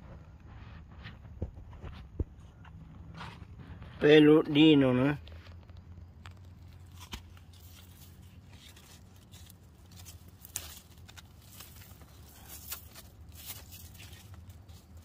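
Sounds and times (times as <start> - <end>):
dry leaves rustling and snapping: 4.6 - 15.0.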